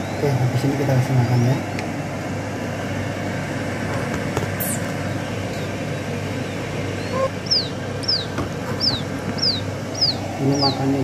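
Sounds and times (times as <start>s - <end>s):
low background rumble: 0.0s - 11.0s
quail chicks peeping: 4.5s - 11.0s.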